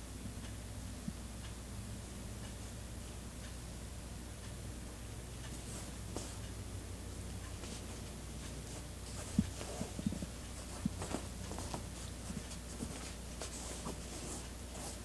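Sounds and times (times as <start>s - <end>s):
faint low hum: 0.0s - 15.0s
cat scratching fabric: 7.5s - 15.0s.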